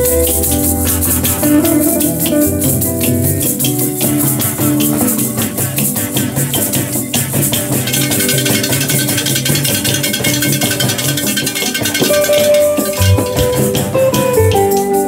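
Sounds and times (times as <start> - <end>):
bass line: 0.0 - 5.1, 12.9 - 14.8
gourd rattles shaken: 0.0 - 15.0.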